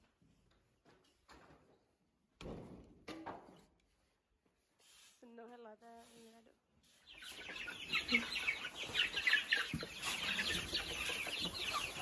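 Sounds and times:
chicks peeping and chirping: 4.6s - 12.0s.

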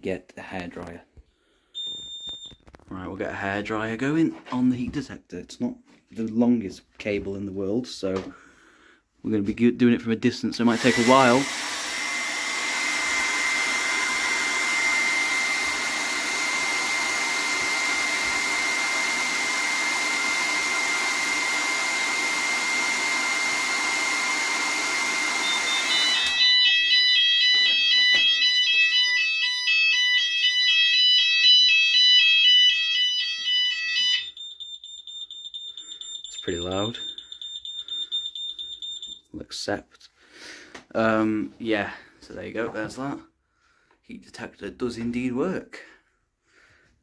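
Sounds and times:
steady high beep: 1.8s - 2.6s, 25.4s - 39.3s
warbling multi-tone fire alarm: 1.8s - 2.6s, 25.2s - 39.3s
hairdryer blowing with whine: 10.6s - 29.2s.

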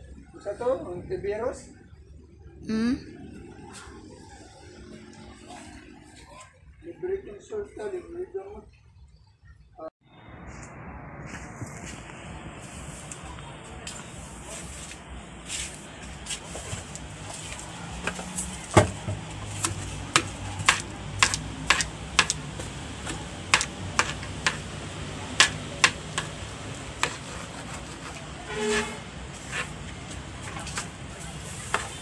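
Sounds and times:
sharp clicks and knocks: 23.1s - 24.7s, 25.4s - 26.4s.

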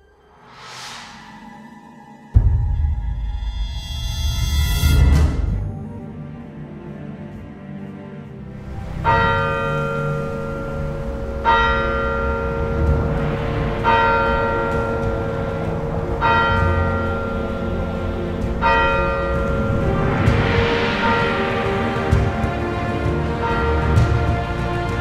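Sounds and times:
church bell tolling: 9.0s - 20.0s, 21.0s - 21.3s.

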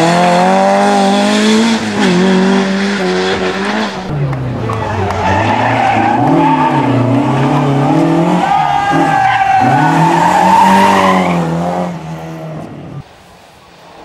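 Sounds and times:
rally car engine revving: 0.0s - 13.0s
tyres squealing on tarmac: 4.7s - 11.5s.

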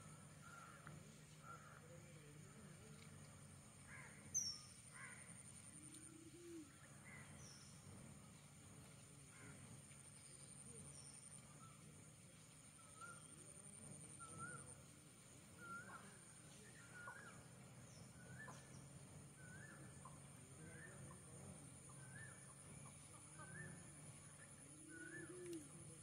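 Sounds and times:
faint bird calling: 3.8s - 7.9s, 15.6s - 26.0s.

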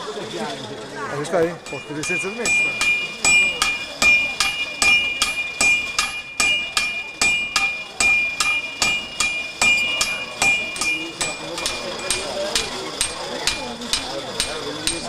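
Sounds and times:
hammers striking iron on anvil: 1.6s - 15.0s.

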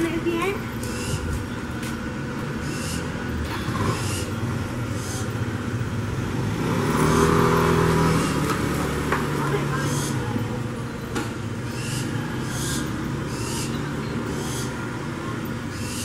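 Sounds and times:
street traffic noise: 0.0s - 16.0s
vehicle engine passing: 0.0s - 16.0s
barn owls hissing: 0.9s - 1.3s, 2.6s - 5.3s, 9.8s - 10.3s, 11.7s - 14.8s, 15.7s - 16.0s.

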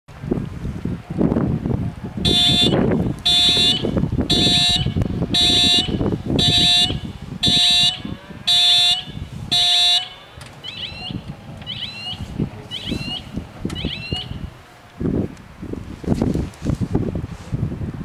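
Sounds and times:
level crossing warning bells: 2.3s - 14.8s.

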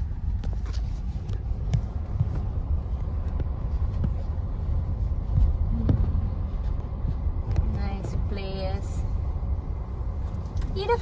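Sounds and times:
road and wind noise in car: 0.0s - 11.0s.

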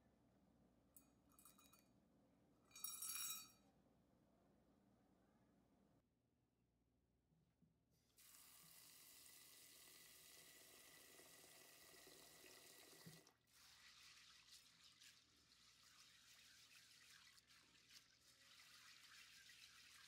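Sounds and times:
tap water running into bowl: 8.2s - 20.0s
hands swishing beans in water: 13.5s - 20.0s.

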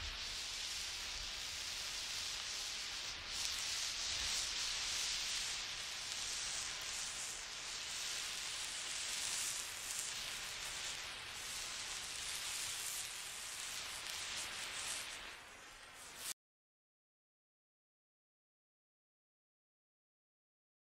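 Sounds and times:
static hiss: 0.0s - 16.4s.

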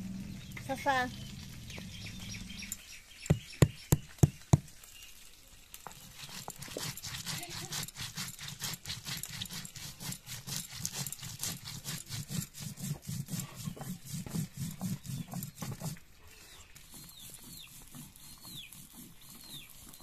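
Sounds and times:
stone-on-stone grinding: 5.9s - 16.0s, 16.8s - 20.0s.

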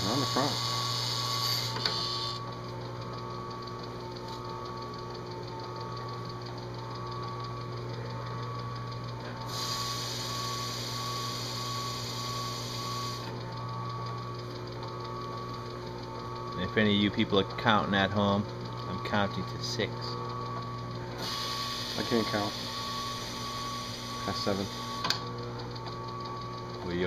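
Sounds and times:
drill press motor hum: 0.0s - 27.0s
tool hissing against metal: 9.5s - 13.2s, 21.2s - 25.1s.

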